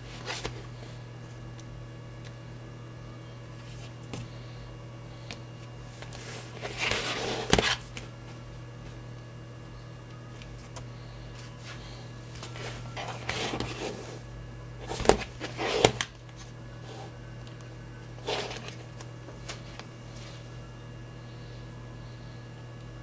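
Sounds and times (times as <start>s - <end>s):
phones rustling and rubbing: 0.0s - 1.4s, 3.6s - 4.6s, 5.2s - 9.1s, 10.3s - 20.6s
steady low hum: 0.0s - 23.0s.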